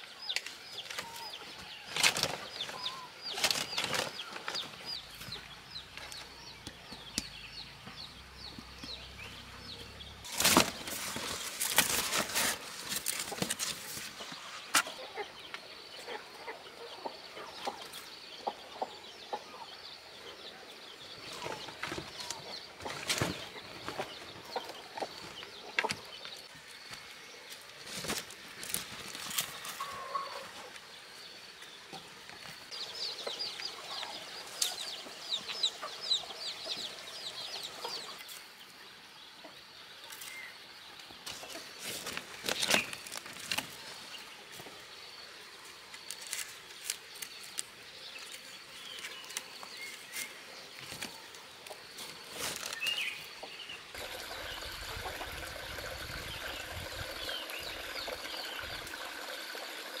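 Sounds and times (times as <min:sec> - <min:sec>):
steady outdoor hiss: 0:00.0 - 1:00.0
chickens clucking: 0:12.1 - 0:19.8, 0:21.3 - 0:26.5, 0:29.6 - 0:30.8, 0:33.2 - 0:38.4.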